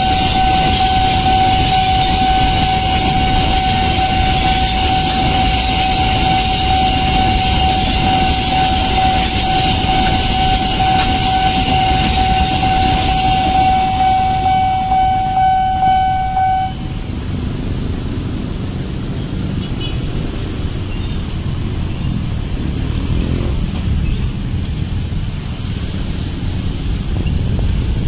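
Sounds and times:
level crossing bell ringing: 0:02.1 - 0:16.9
motorcycle and car engines: 0:16.7 - 0:28.0.

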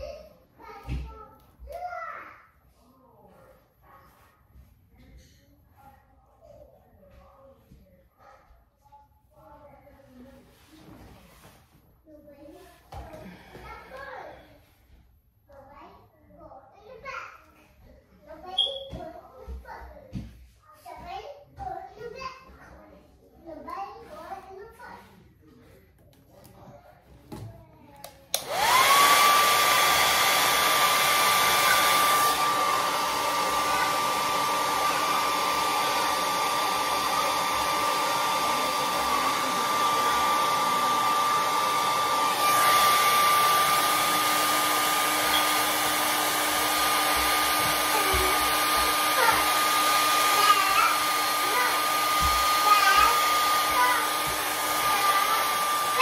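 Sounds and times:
hair dryer running: 0:12.9 - 0:14.0, 0:28.0 - 0:56.0.

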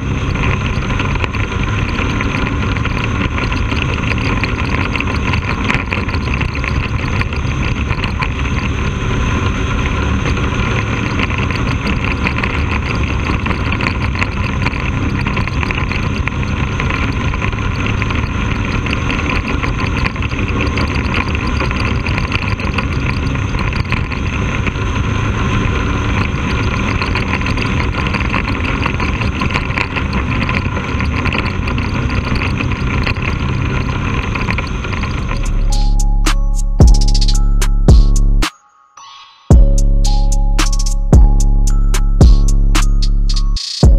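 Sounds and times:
race car engine running: 0:00.0 - 0:38.5.

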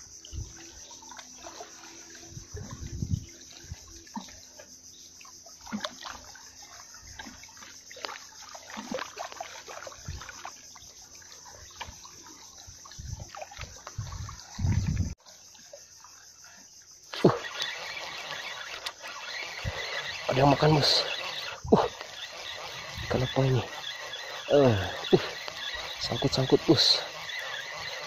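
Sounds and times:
water trickling at shore: 0:00.0 - 0:28.0
small ticks: 0:16.0 - 0:28.0.

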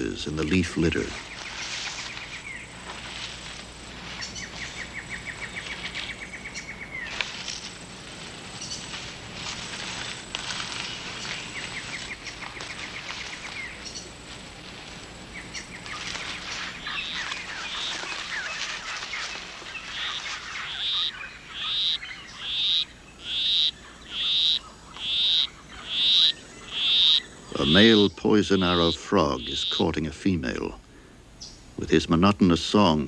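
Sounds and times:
rainforest chirps and trills: 0:00.0 - 0:33.0
frog chirping call: 0:03.8 - 0:07.9, 0:15.2 - 0:30.1.

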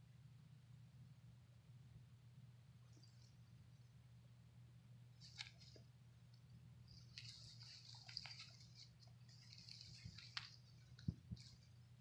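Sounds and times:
faint low hum: 0:00.0 - 0:12.0
soft high hiss: 0:00.0 - 0:12.0.

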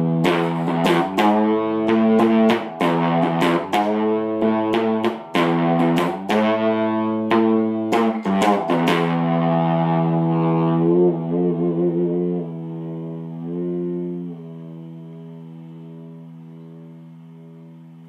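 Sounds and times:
plucked electric string notes: 0:00.0 - 0:18.0.

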